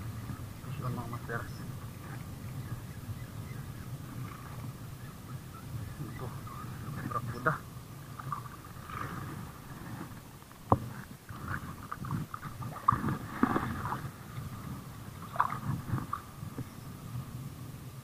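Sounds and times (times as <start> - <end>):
fish thrashing and splashing: 11.3 - 14.2.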